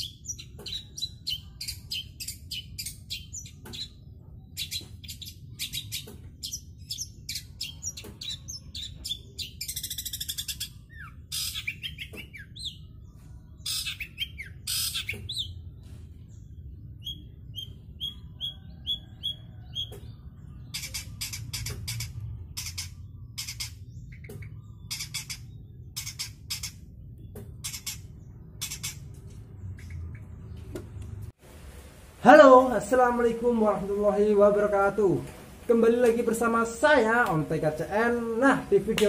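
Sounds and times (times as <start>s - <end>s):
bird harsh chirps and squawks: 0.0s - 15.8s, 17.0s - 30.6s.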